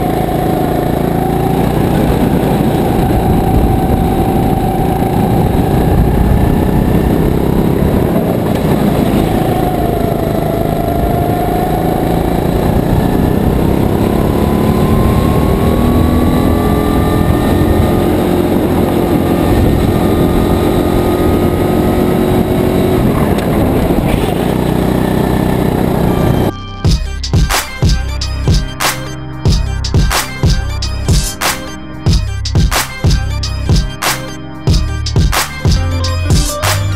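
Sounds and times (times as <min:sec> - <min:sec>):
kart engine running: 0:00.0 - 0:28.8.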